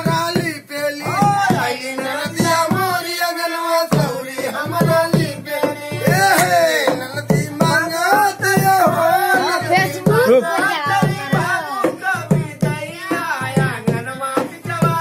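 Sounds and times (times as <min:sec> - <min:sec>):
person singing: 0:03.9 - 0:15.0.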